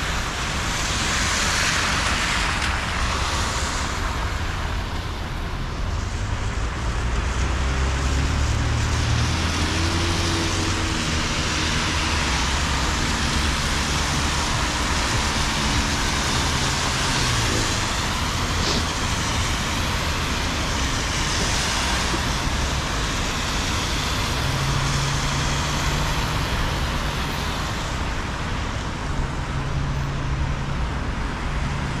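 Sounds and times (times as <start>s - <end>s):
tyres hissing on wet asphalt: 0.0s - 32.0s.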